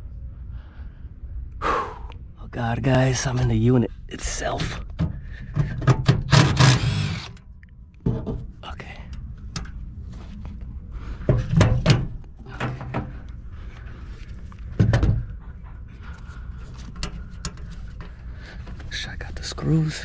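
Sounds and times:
metal parts knocking and thumping: 4.6 - 7.0, 8.0 - 8.5, 11.3 - 13.2, 14.8 - 15.3.

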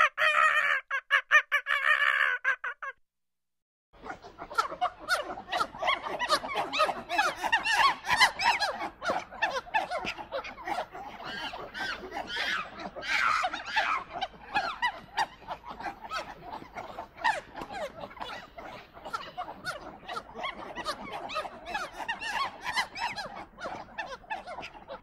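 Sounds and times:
monkeys chattering: 4.0 - 25.0.

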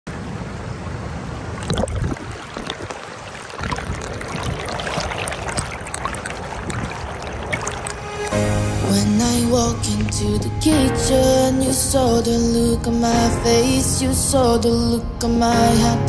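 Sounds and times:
stream rushing over rocks: 0.2 - 10.8.

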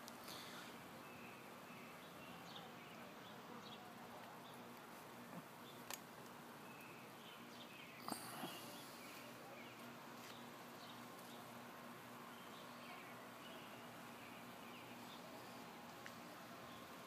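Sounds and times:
faint bird chirps: 6.6 - 11.5.

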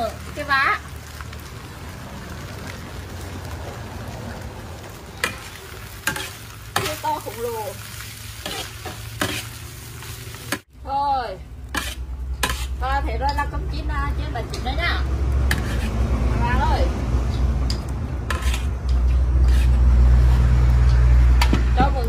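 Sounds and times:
steady sizzle: 0.0 - 22.0
metal spatula scraping a wok: 5.2 - 10.7, 11.7 - 21.5.

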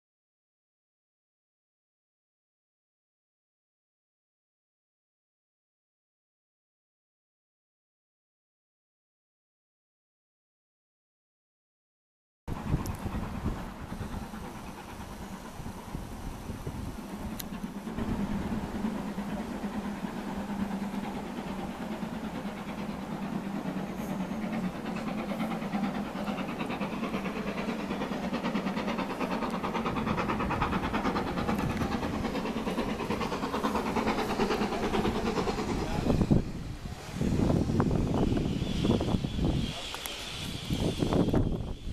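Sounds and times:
steam locomotive chuffing: 12.5 - 41.9.

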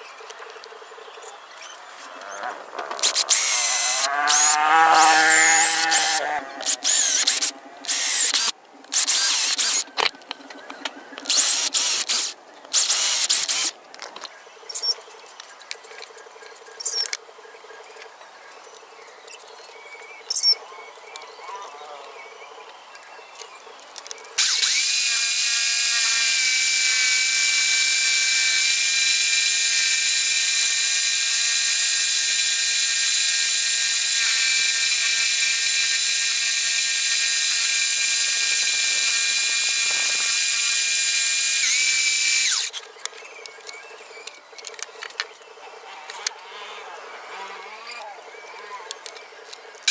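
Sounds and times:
scroll saw motor whine: 1.6 - 10.1, 11.2 - 13.8, 24.0 - 49.9
power drill running in bursts: 3.0 - 4.6, 5.3 - 9.8, 11.3 - 13.7, 24.4 - 42.8.

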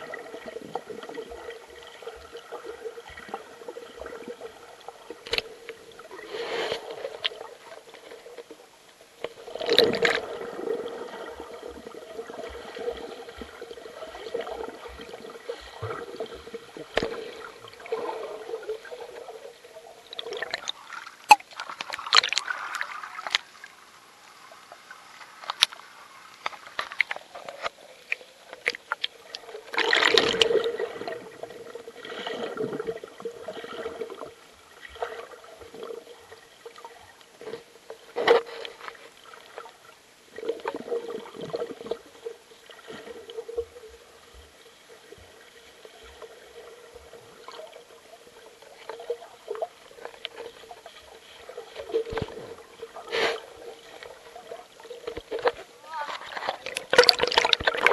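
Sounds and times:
small clicks and knocks: 25.2 - 25.8.

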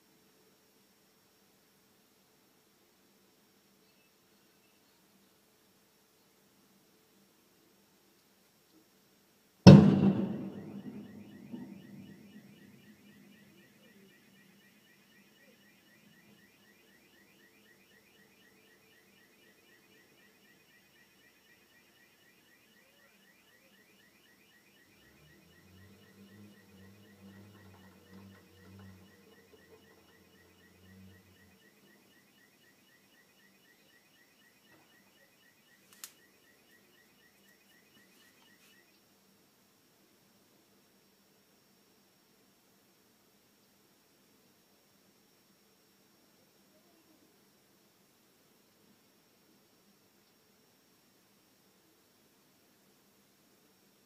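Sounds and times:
faint high chirp: 3.8 - 5.4, 9.9 - 39.0
loud explosive bang: 9.7 - 12.7
sharp click: 35.9 - 36.2.

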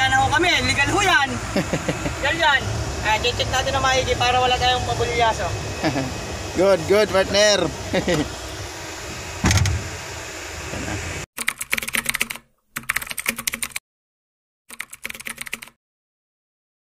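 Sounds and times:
truck cab hum: 0.0 - 11.2
keyboard typing clicks: 11.4 - 13.8, 14.7 - 15.8.

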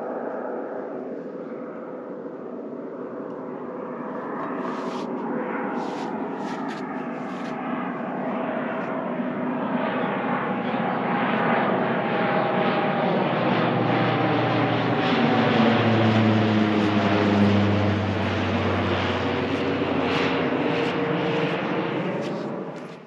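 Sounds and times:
engine running: 13.8 - 23.0.

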